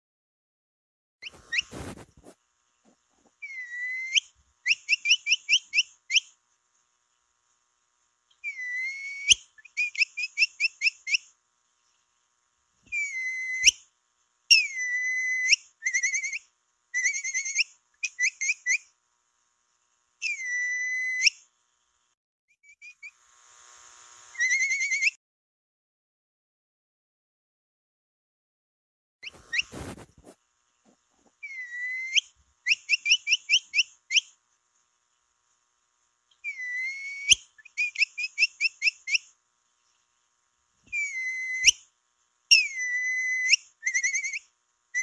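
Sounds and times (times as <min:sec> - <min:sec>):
short chirps: 0:01.2 - 0:02.2, 0:29.2 - 0:30.4
capybara whistled call: 0:03.4 - 0:06.3, 0:08.4 - 0:11.2, 0:12.9 - 0:13.8, 0:14.5 - 0:16.4, 0:20.2 - 0:21.4, 0:24.4 - 0:25.2, 0:31.4 - 0:34.3, 0:36.4 - 0:39.3, 0:40.9 - 0:41.8, 0:42.5 - 0:45.0.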